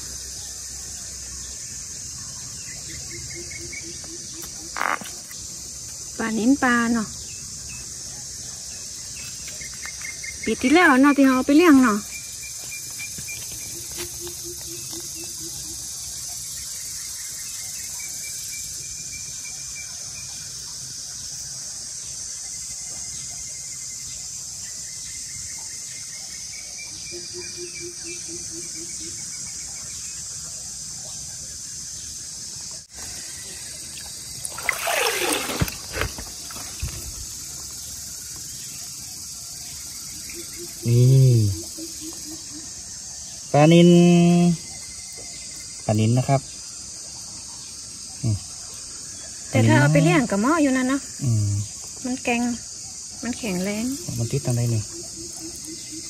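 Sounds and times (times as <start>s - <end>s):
crickets and insects chirping: 0.0s - 56.0s
water trickling: 29.4s - 56.0s
water splash and handling noise: 32.9s - 37.6s.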